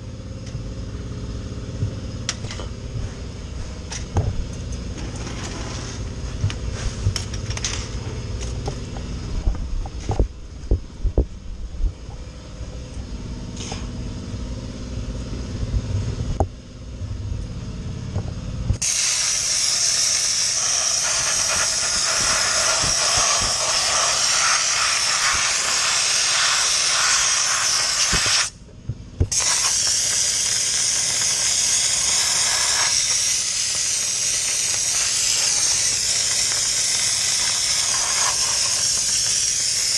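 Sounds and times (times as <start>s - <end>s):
dry ice blasting gun hissing: 18.8s - 28.6s, 29.3s - 39.9s.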